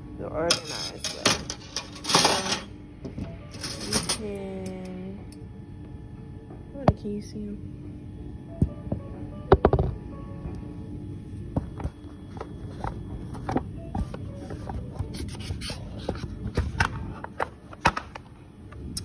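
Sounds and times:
metal instruments clinking: 0.5s - 2.7s, 3.5s - 4.4s.

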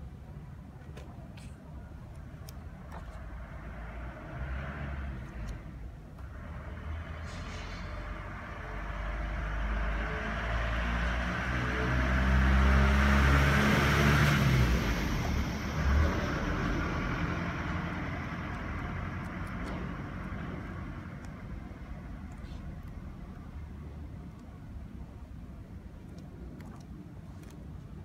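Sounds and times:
vehicle passing by: 3.4s - 5.7s, 6.3s - 22.6s.

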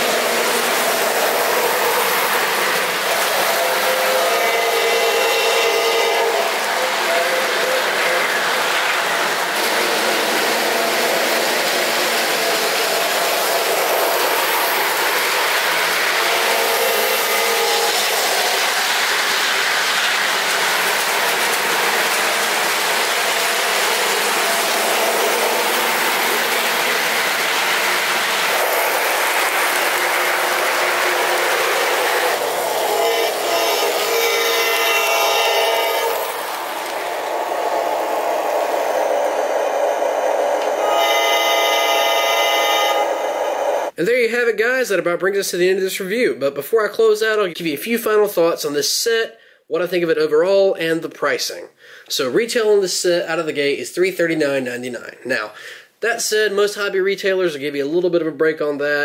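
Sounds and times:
model train diesel sound: 0.0s - 44.0s
small wheels rumbling on rail: 0.0s - 44.0s
model train horn blast: 3.1s - 8.3s, 16.2s - 18.6s, 29.9s - 36.4s, 40.8s - 43.7s.

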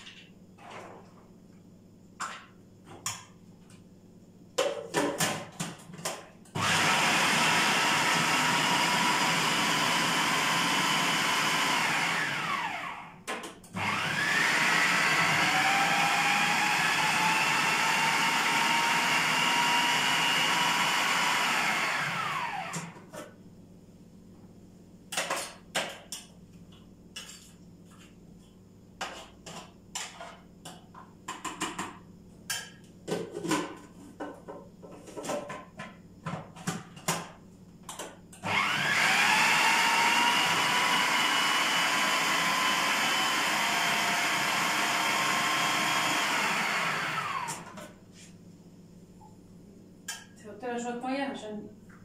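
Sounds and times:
blender motor grinding: 6.6s - 13.2s, 13.8s - 23.0s, 38.4s - 47.8s.

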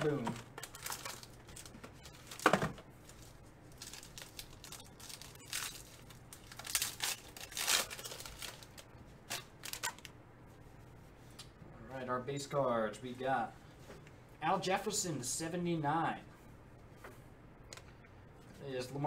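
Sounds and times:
foil wrapper tearing and crinkling: 3.7s - 10.1s.

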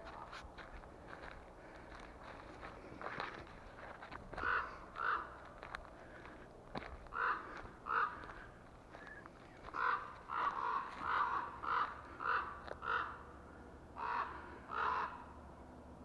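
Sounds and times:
crows cawing: 4.3s - 15.4s.

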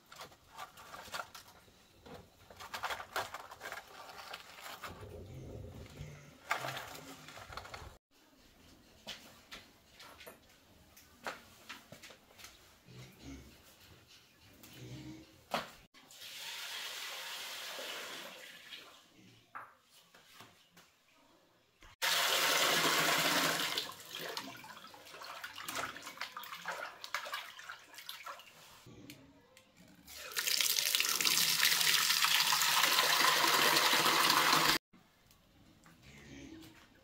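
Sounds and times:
tap water gushing into a pot: 22.0s - 28.4s, 30.1s - 34.8s.

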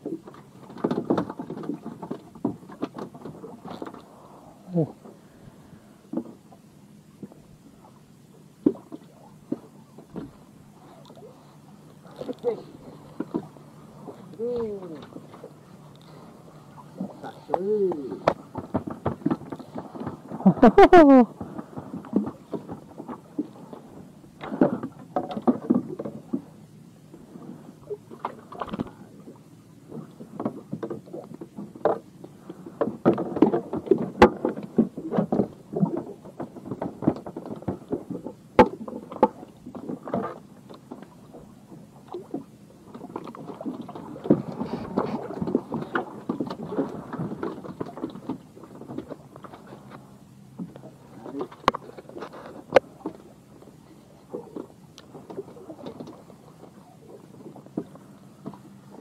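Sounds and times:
water lapping against hull: 0.0s - 59.0s.

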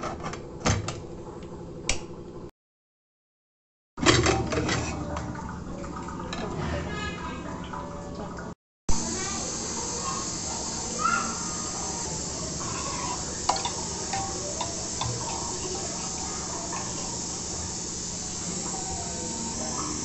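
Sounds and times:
dal simmering in a pot: 8.9s - 20.0s
steel ladle clicking against pot: 13.5s - 15.4s.

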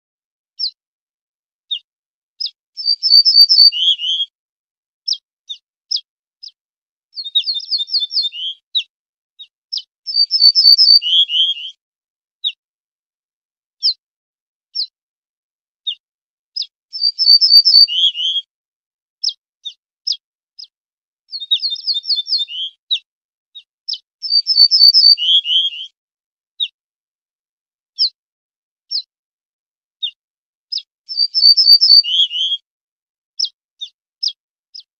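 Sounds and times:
bird song phrases: 0.5s - 0.8s, 1.6s - 4.4s, 5.0s - 11.8s, 12.4s - 12.6s, 13.8s - 14.0s, 14.7s - 15.0s, 15.8s - 18.5s, 19.2s - 26.0s, 26.6s - 26.8s, 27.9s - 28.2s, 28.8s - 29.1s, 29.9s - 32.7s, 33.3s - 34.9s
bird call notes: 2.8s - 4.3s, 7.2s - 8.9s, 9.7s - 11.8s, 17.0s - 18.5s, 21.3s - 22.8s, 23.9s - 26.0s, 31.1s - 32.6s.

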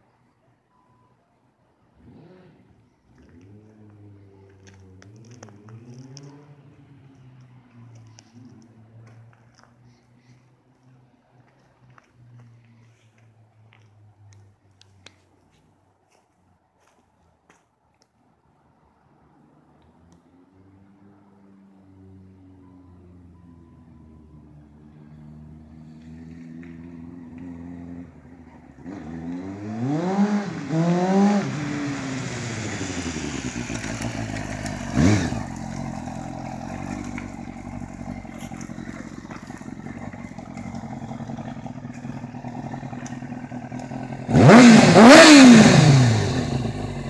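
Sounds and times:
motorcycle engine revving: 2.0s - 6.8s, 25.2s - 47.0s.

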